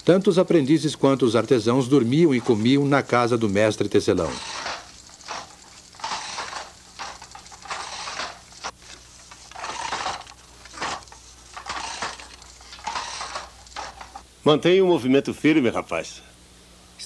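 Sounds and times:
sharp wooden knocks of loom: 4.3 - 8.5, 9.5 - 14.2
loom swishing: 4.3 - 14.2.

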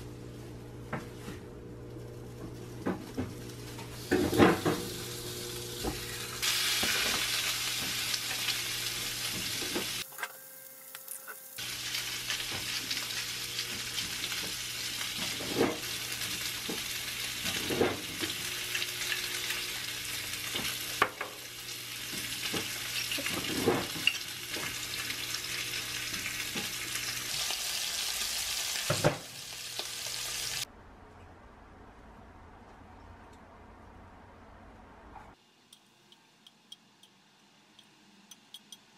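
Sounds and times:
meat sizzling in a frying pan: 3.4 - 10.0, 10.9 - 30.7.

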